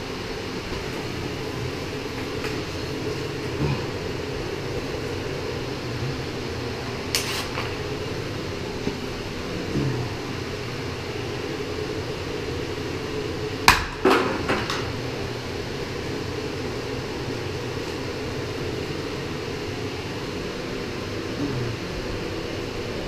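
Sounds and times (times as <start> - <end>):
steady background hum: 0.0 - 23.0.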